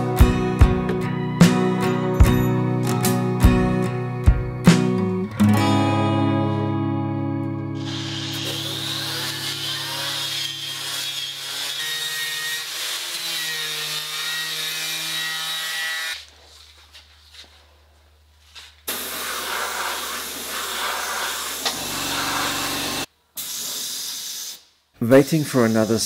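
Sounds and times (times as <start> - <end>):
spray gun hissing: 7.8 - 10.9, 18.9 - 22.4, 23.4 - 24.7
angle grinder grinding steel: 7.8 - 16.2, 19.2 - 23.1.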